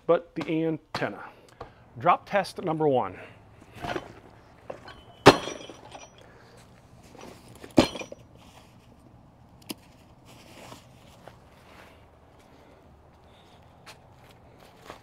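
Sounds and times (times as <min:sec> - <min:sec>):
buckles clicking and rustling: 0:03.5 - 0:11.5
tools ringing: 0:04.7 - 0:06.3, 0:07.8 - 0:08.2.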